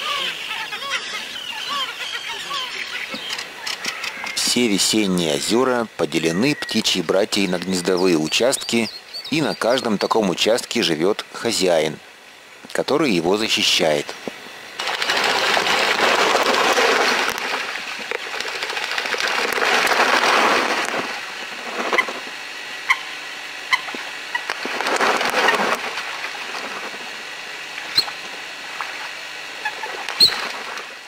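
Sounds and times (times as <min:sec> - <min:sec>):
birds splashing across water: 0:14.8 - 0:22.2, 0:23.7 - 0:31.0.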